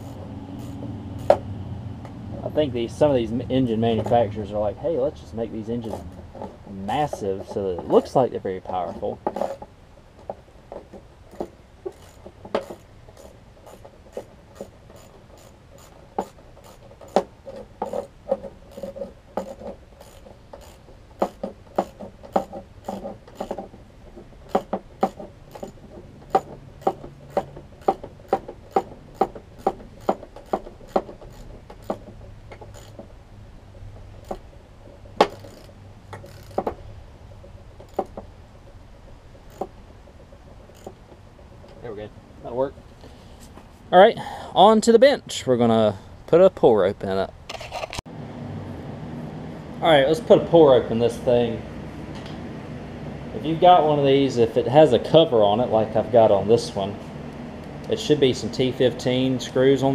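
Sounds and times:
light scraping: 2.4s - 28.1s.

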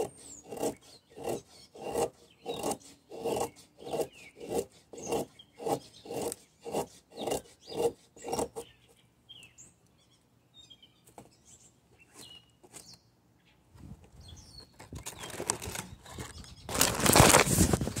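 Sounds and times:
knife shaving wood: 0.0s - 8.6s, 15.0s - 18.0s
hand rubbing on camera: 17.2s - 18.0s.

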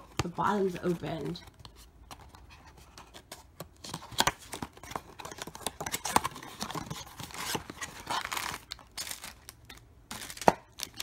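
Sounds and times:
plastic packaging crinkling: 3.8s - 11.0s.

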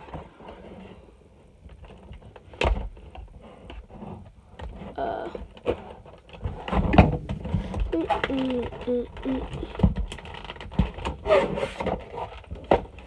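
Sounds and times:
clicks and scrapes: 0.0s - 13.0s
packaging being handled: 7.0s - 11.2s.

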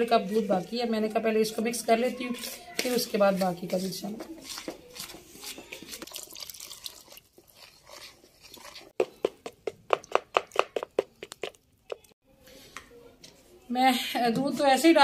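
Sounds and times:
wet squelches of batter mixing: 0.3s - 12.8s
spoon beating batter in bowl: 2.4s - 12.1s.

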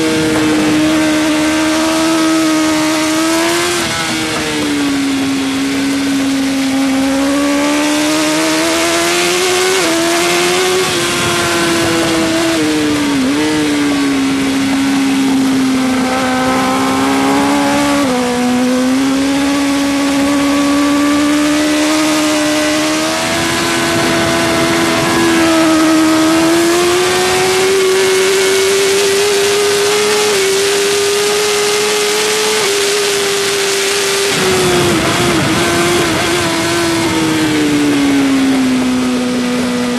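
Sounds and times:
motorcycle engine at high revs: 0.0s - 39.9s
rush of wind noise: 0.0s - 39.9s.

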